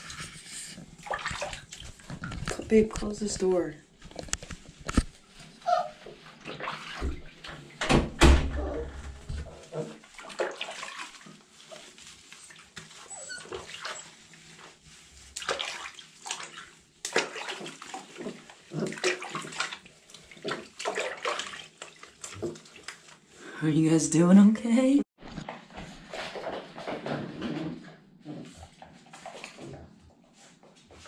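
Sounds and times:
water sloshing: 0.0s - 3.6s, 4.5s - 7.8s, 8.5s - 23.4s
hands rubbing wet fur: 0.0s - 7.7s, 9.3s - 24.5s
puppy whining: 5.6s - 6.1s, 12.4s - 14.2s.

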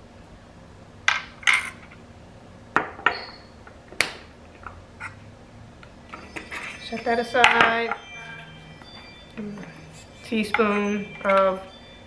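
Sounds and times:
jars clinking on glass: 6.2s - 11.7s.

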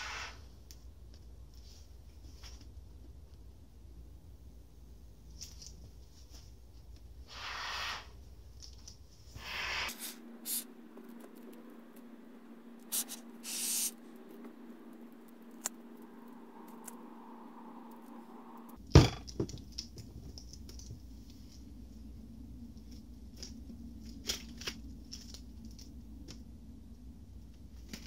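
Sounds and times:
aerosol foam spray hissing: 7.3s - 8.1s, 9.4s - 10.7s, 12.8s - 14.0s.

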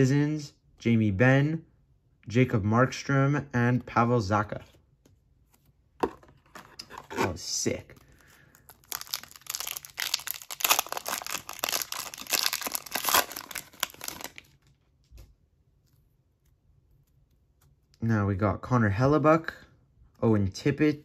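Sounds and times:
foil wrapper tearing and crinkling: 8.6s - 14.7s.

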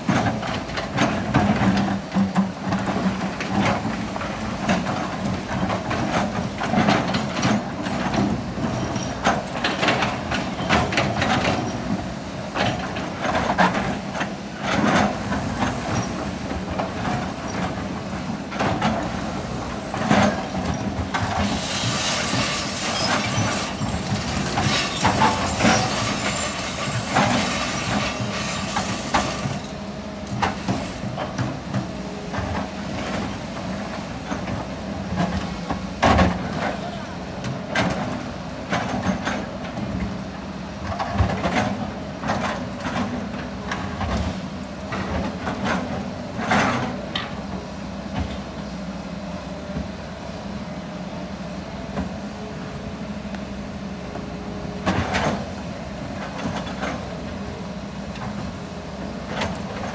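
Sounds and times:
excavator diesel engine running: 0.0s - 59.9s
rushing hiss and rattle: 21.4s - 29.6s.

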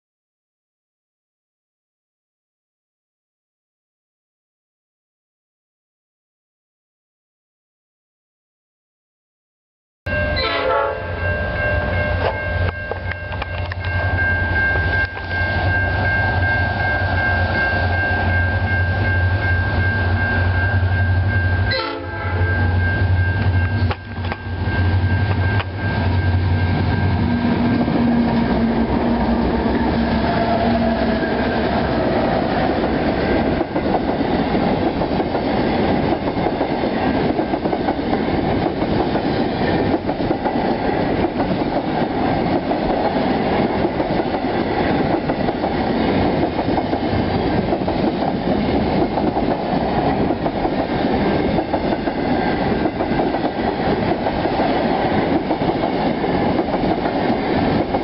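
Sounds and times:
steady high tone: 10.1s - 33.9s
diesel locomotive engine drone: 10.1s - 58.0s
wagons rumbling on rails: 10.1s - 58.0s.

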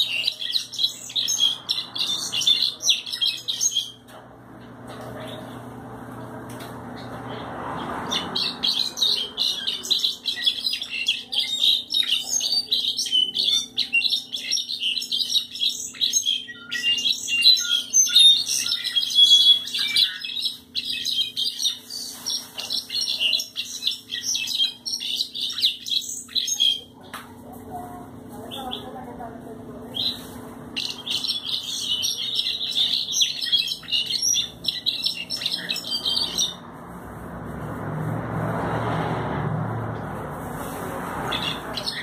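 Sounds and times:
bird singing trilled song: 0.0s - 4.1s, 7.0s - 27.0s, 29.9s - 36.6s, 41.3s - 42.0s.

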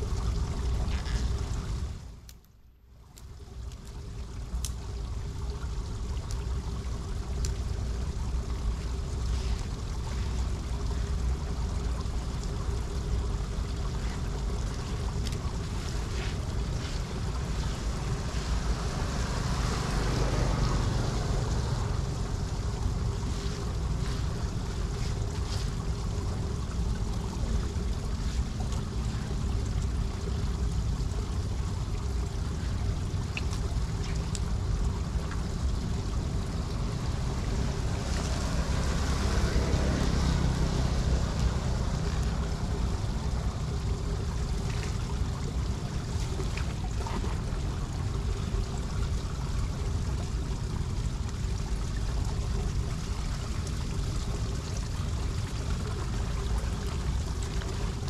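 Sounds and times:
water rushing: 0.0s - 2.2s, 3.0s - 58.0s
faint ticks: 2.2s - 5.0s, 7.3s - 7.7s, 13.9s - 15.4s, 33.3s - 34.5s.

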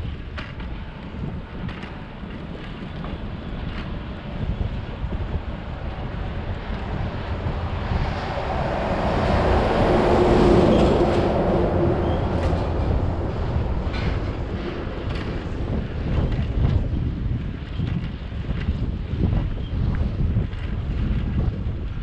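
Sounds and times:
wind buffeting microphone: 0.0s - 22.0s
truck passing: 3.2s - 17.4s.

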